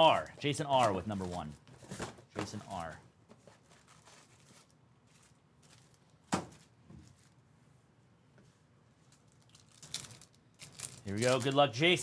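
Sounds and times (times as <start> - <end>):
foil card packs handled: 0.0 - 7.4, 9.1 - 11.9.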